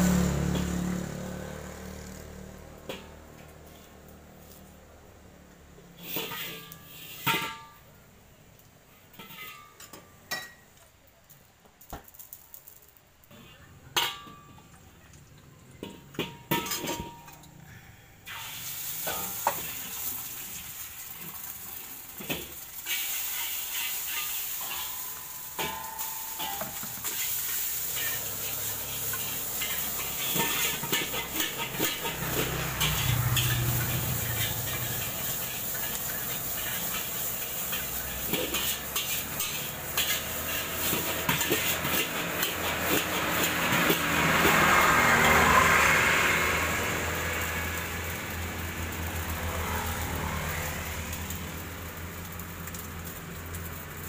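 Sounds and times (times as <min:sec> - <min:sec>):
frying sizzle: 0:00.0 - 0:17.6, 0:18.2 - 0:54.0
metal spatula clanking on wok: 0:06.0 - 0:07.8, 0:09.1 - 0:10.7, 0:13.4 - 0:14.8, 0:15.7 - 0:17.5, 0:18.3 - 0:20.2, 0:22.1 - 0:45.8.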